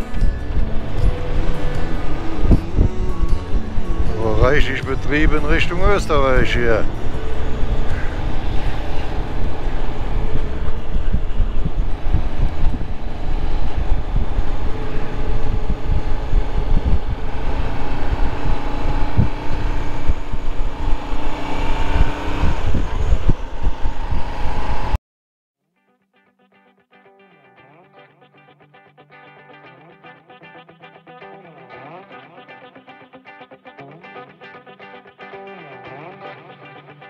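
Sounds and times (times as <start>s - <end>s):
motorcycle engine drone: 0.0s - 25.0s
wind rumble on microphone: 0.0s - 25.0s.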